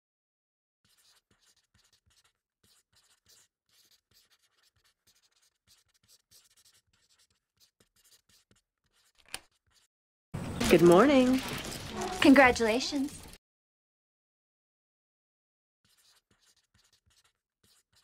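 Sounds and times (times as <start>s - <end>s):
pencil scratching on paper: 0.8s - 9.9s, 11.1s - 13.4s, 15.8s - 18.0s.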